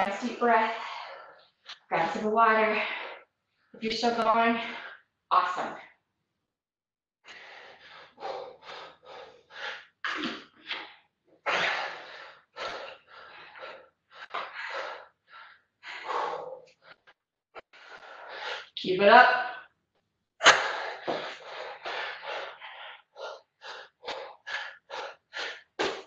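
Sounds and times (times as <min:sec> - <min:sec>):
woman breathing heavily: 0:00.5 - 0:03.4, 0:07.2 - 0:10.8, 0:11.4 - 0:18.8, 0:20.4 - 0:26.0.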